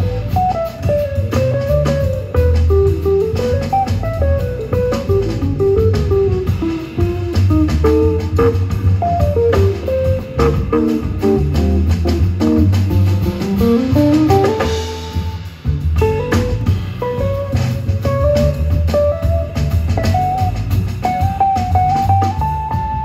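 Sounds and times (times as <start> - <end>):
drum kit with cymbals: 0.0 - 23.0
jazz guitar melody: 0.0 - 23.0
plucked upright bass: 0.0 - 23.0.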